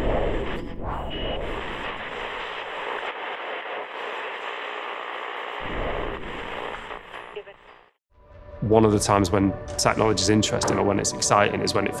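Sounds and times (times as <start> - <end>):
static-like hiss: 1.2 - 7.9
deep rumble: 5.6 - 7.3.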